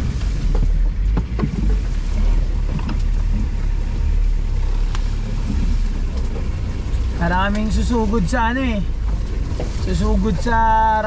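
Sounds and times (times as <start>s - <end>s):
engine low rumble: 0.0s - 11.0s
knocks and clicks: 0.5s - 3.8s.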